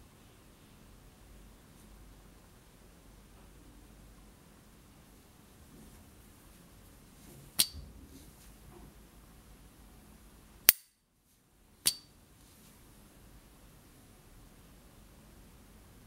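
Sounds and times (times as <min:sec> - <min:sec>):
lighter high ping: 0:11.9 - 0:12.1
lighter lid metallic clicks: 0:11.9 - 0:12.1.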